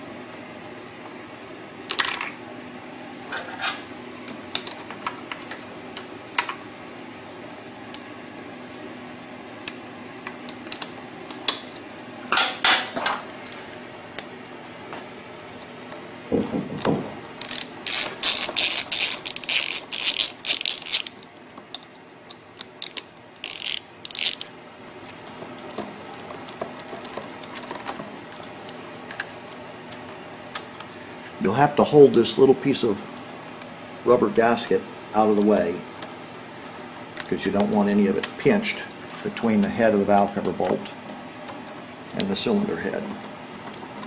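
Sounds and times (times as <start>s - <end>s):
ratchet tool clicking: 17.4s - 21.2s, 22.8s - 24.5s.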